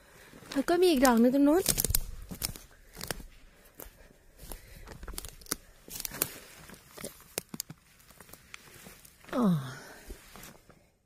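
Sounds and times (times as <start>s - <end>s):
footsteps crunching dry leaves: 0.6s - 9.2s.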